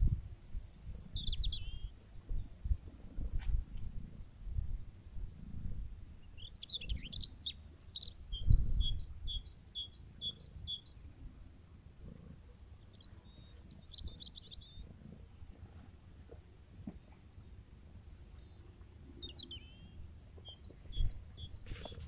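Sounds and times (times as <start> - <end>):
songbird singing: 0.0 - 2.7, 6.2 - 11.4, 12.5 - 15.0, 16.3 - 22.0.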